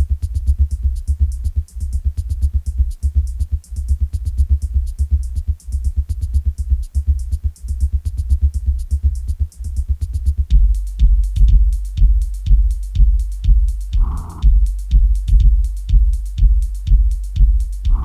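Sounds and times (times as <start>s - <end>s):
industrial metal with drum machine: 9.5s - 18.0s.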